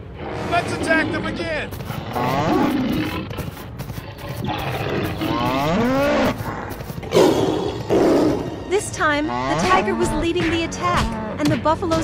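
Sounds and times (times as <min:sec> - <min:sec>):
tiger roaring: 0:00.0 - 0:08.7.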